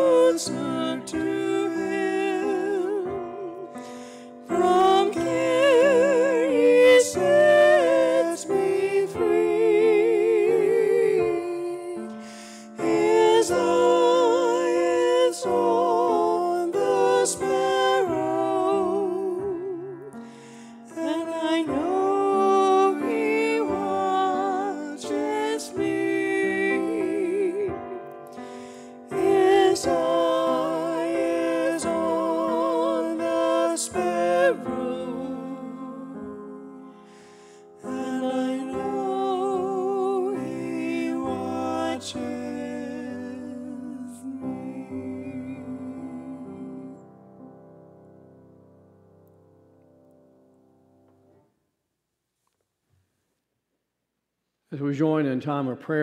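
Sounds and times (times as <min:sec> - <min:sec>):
piano accompaniment: 0:00.0 - 0:51.4
woman singing with vibrato: 0:04.5 - 0:12.1, 0:12.8 - 0:20.1, 0:20.9 - 0:27.9, 0:29.1 - 0:36.9, 0:37.9 - 0:47.0.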